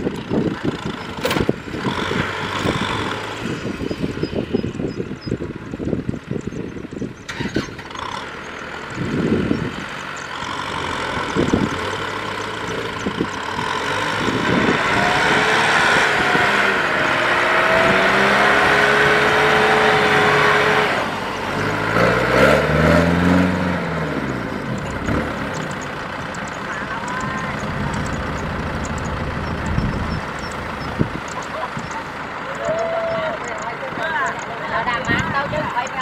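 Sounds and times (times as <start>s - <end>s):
tractor diesel engine under load: 0.0s - 36.0s.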